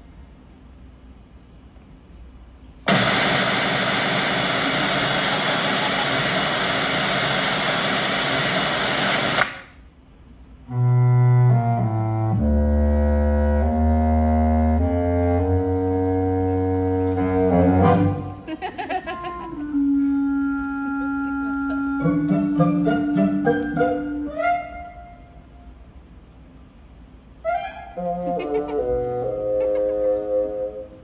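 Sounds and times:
loud even noise: 0:02.9 - 0:09.7
faint music: 0:10.0 - 0:31.0.

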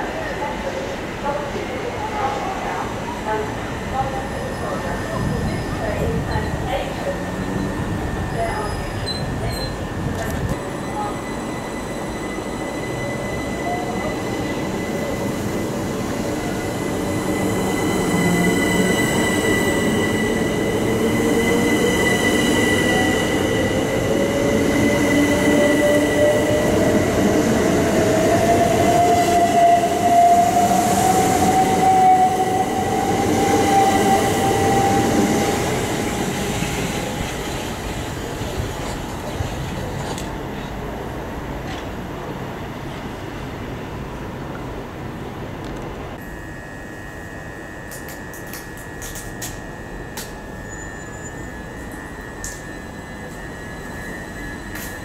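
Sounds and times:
steady high tone: 0:02.0 - 0:38.4, 0:46.2 - 0:55.0
electric train motor whine: 0:46.2 - 0:55.0.

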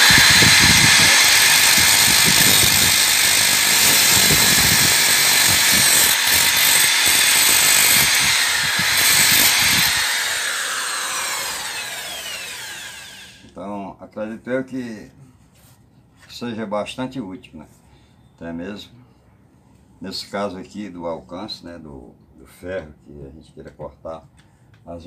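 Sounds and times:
cutting disc grinding steel: 0:00.0 - 0:13.4
drill winding down whine: 0:00.0 - 0:13.5.

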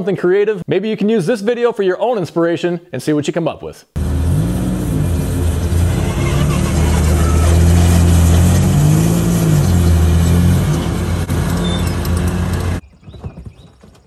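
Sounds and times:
lawnmower engine running: 0:04.0 - 0:12.8.

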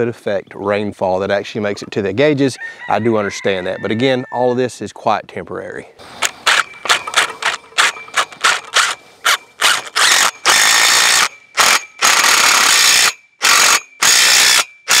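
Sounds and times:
impact driver driving bolt: 0:06.2 - 0:15.0.

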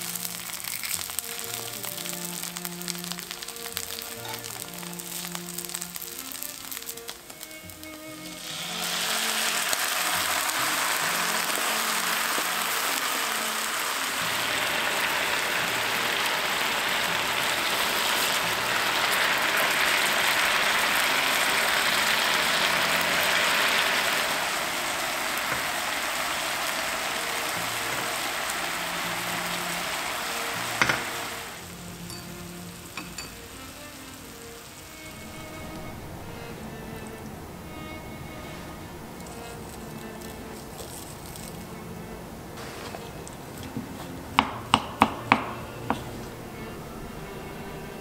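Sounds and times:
sauce sizzling in a frying pan: 0:00.0 - 0:35.8
spatula knocking on pan: 0:44.4 - 0:46.1.

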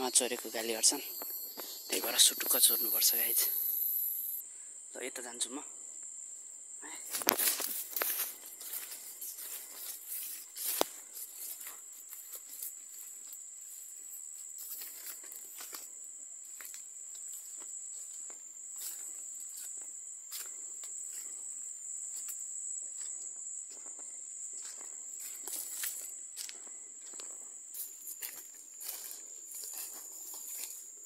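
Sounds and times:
high insect buzz: 0:00.0 - 0:31.0
footsteps through undergrowth: 0:07.1 - 0:31.0.

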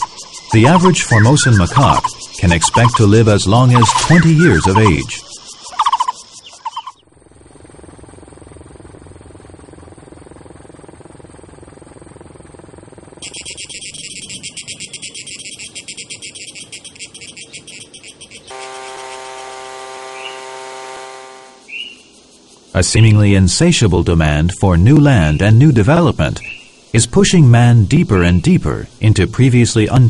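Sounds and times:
loud animal calls: 0:00.0 - 0:07.0
pulsing insect chorus: 0:00.0 - 0:30.0
small petrol engine running: 0:07.3 - 0:21.7.

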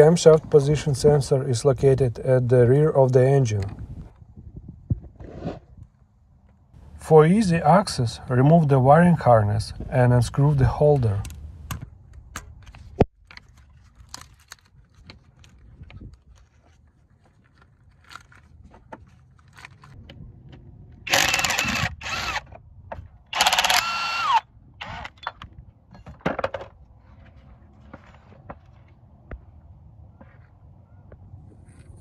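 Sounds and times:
cordless power tool spinning: 0:21.1 - 0:22.6, 0:23.3 - 0:25.2
clicks and rattles of parts: 0:25.1 - 0:26.8.

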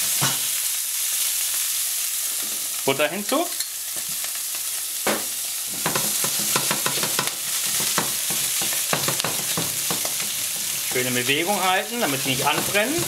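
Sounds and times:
leaves sizzling in a frying pan: 0:00.0 - 0:13.0
metal spoon scraping a pan: 0:12.0 - 0:13.0.

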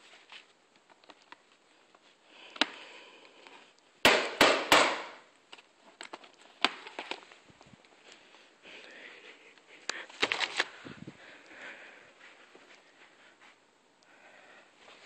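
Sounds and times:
handling rustles and clicks: 0:00.0 - 0:03.8, 0:05.4 - 0:08.4, 0:09.5 - 0:10.9.

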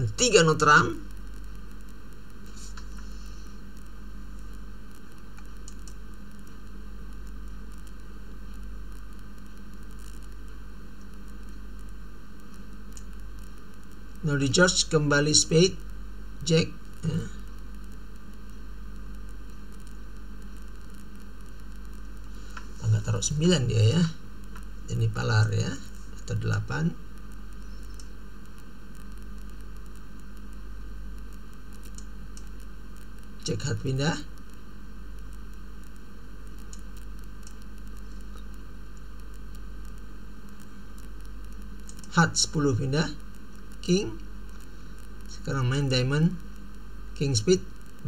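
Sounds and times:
low electrical hum: 0:00.0 - 0:48.0
steady hiss: 0:00.0 - 0:48.0
faint clicks: 0:03.7 - 0:14.3, 0:16.8 - 0:22.7, 0:25.7 - 0:33.6, 0:34.3 - 0:42.2.

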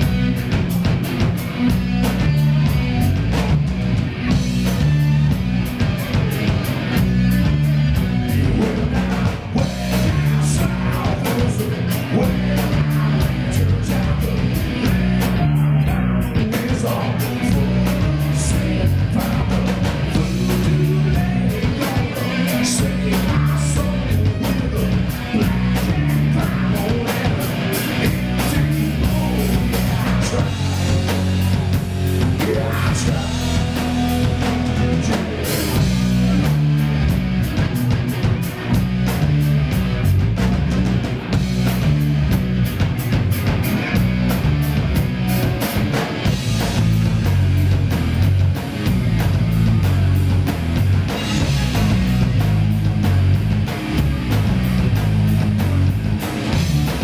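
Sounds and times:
bass guitar: 0:00.0 - 0:57.0
drum kit: 0:00.0 - 0:57.0
electric guitars: 0:00.0 - 0:57.0
man singing: 0:08.2 - 0:36.5.

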